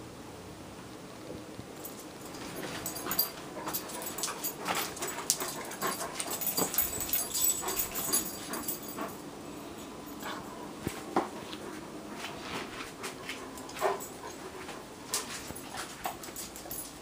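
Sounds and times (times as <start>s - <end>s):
claws clicking on tile floor: 1.9s - 9.1s, 15.1s - 17.0s.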